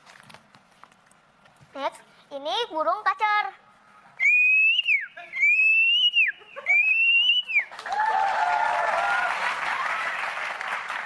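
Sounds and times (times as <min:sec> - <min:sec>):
boy whistling birdsong: 0:04.2 - 0:07.7
audience applause: 0:07.7 - 0:11.0
voice over applause: 0:07.7 - 0:11.0.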